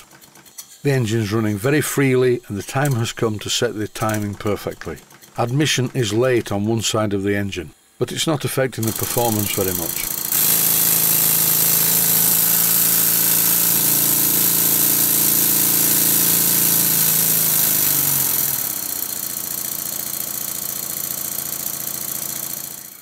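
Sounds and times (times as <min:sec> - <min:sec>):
model steam engine running: 0:00.0 - 0:07.3, 0:08.8 - 0:23.0
hiss of compressed air: 0:10.3 - 0:19.6.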